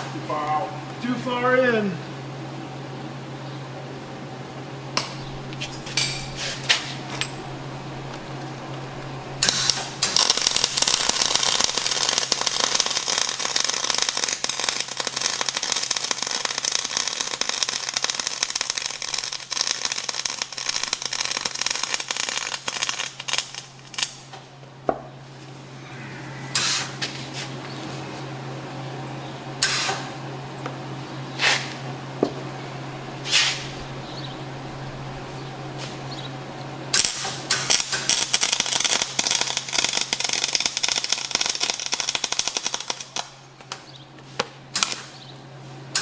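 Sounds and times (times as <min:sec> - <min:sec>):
steady low hum: 0:00.0 - 0:46.0
welding arc crackling: 0:05.0 - 0:24.4, 0:36.8 - 0:43.7, 0:44.8 - 0:45.1.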